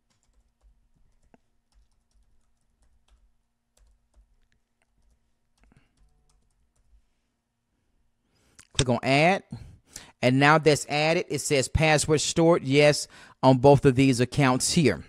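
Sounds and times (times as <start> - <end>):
faint keyboard typing: 0.0 - 7.1.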